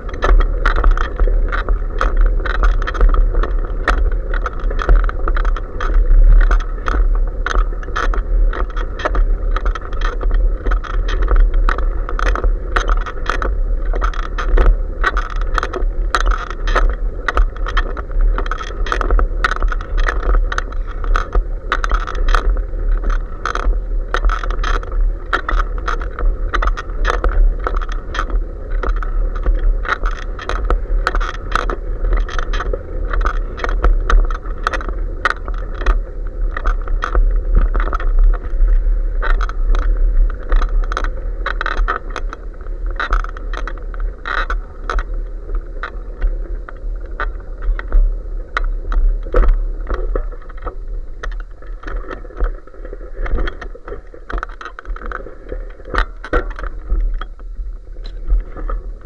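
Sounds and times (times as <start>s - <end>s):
bicycle rattling clicks: 0.0s - 38.6s, 39.2s - 45.1s
wind and road rumble: 0.0s - 59.0s.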